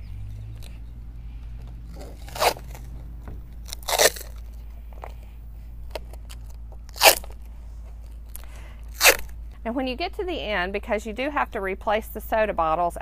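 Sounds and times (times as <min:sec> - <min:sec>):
duct tape ripping off roll: 0:01.9 - 0:04.6, 0:05.9 - 0:07.4, 0:08.3 - 0:09.3.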